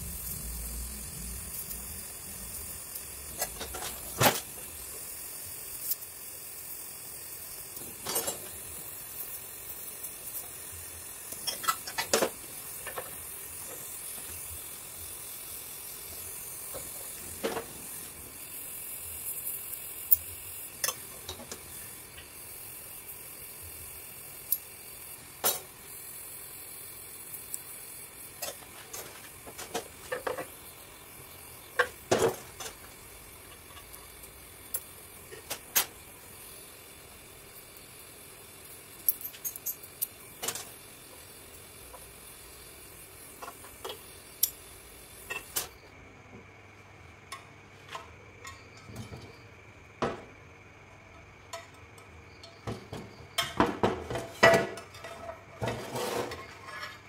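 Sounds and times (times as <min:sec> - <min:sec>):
gas torch flame hissing: 0:00.0 - 0:46.0
metal clinks and knocks: 0:39.0 - 0:40.7.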